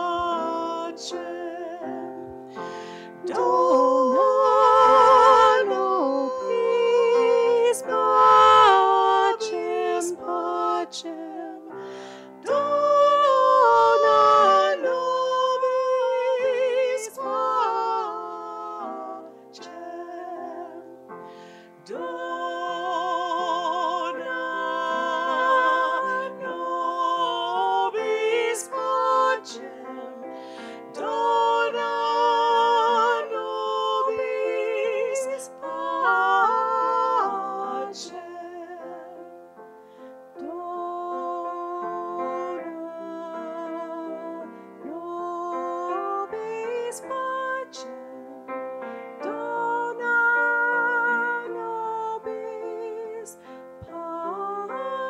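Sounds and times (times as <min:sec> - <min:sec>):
woman singing chant with vibrato: 0:12.4 - 0:20.8, 0:21.9 - 0:30.3, 0:30.9 - 0:39.2.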